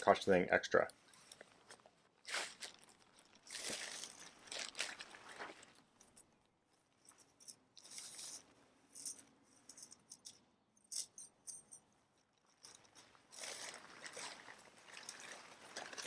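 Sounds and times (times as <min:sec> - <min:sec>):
tent fabric rustling: 0:01.1 - 0:05.9, 0:12.6 - 0:16.0.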